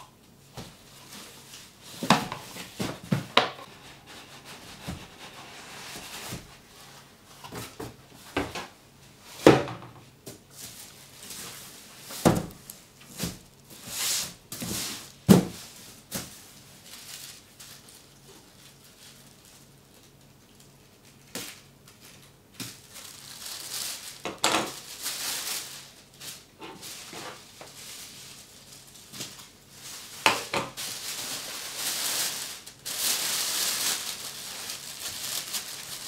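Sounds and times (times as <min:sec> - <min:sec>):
plastic wrapping crinkling: 0:10.4 - 0:36.0.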